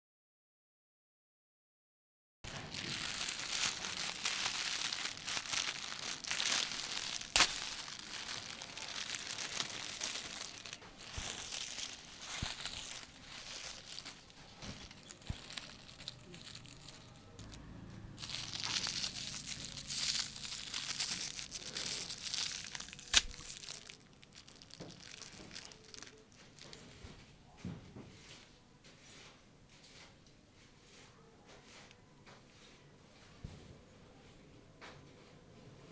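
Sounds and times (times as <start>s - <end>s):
aluminium foil crinkling: 2.5s - 17.6s, 18.2s - 27.2s.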